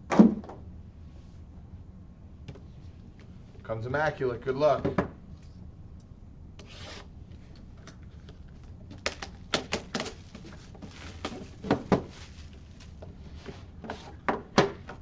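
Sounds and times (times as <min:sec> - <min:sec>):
packaging rustle: 0:08.4 - 0:13.1.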